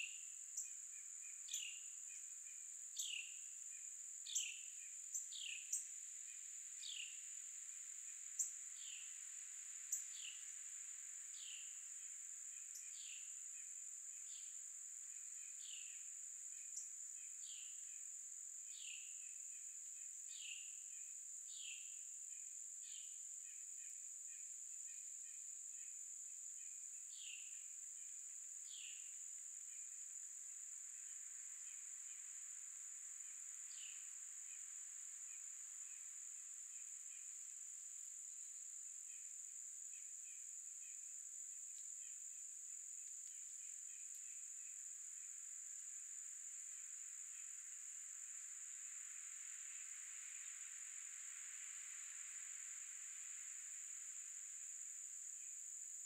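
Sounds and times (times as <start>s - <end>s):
insects high-pitched drone: 0.0s - 56.0s.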